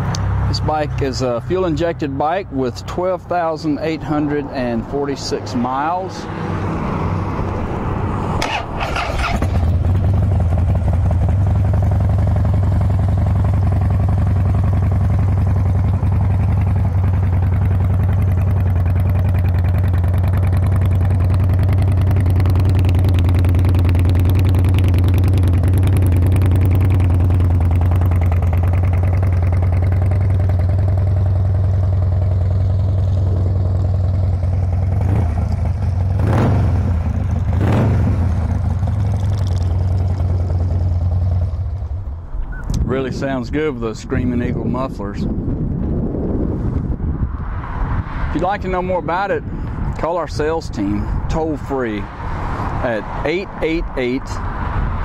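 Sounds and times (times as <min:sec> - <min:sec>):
motorcycle engine idling: 0:08.5 - 0:42.6.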